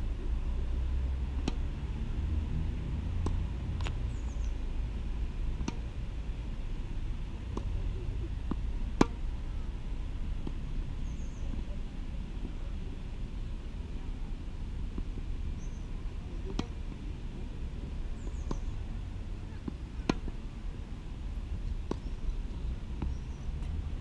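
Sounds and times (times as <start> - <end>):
low steady rumble: 0.0 - 24.0
tennis ball bouncing: 1.3 - 1.8, 3.1 - 4.5, 5.4 - 6.0, 6.8 - 11.7, 14.9 - 15.2, 16.4 - 17.0, 17.8 - 20.8, 21.5 - 23.8
racket hitting ball: 1.4 - 1.7, 3.2 - 4.0, 5.5 - 6.0, 7.4 - 9.3, 16.5 - 16.9, 19.6 - 20.4, 21.7 - 22.1.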